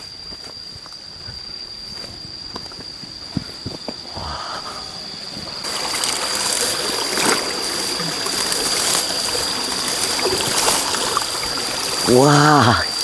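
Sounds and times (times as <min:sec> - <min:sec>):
high-pitched insect drone: 0:00.0 - 0:13.0
water trickling: 0:05.6 - 0:13.0.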